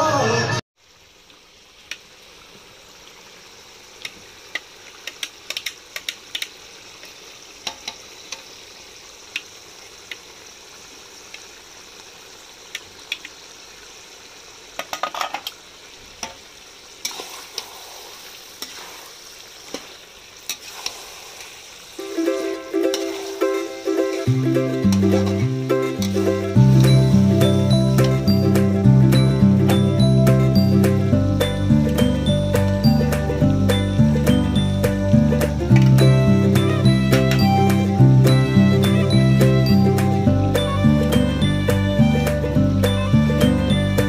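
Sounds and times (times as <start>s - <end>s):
meat sizzling in a pan: 0.8s - 29.9s.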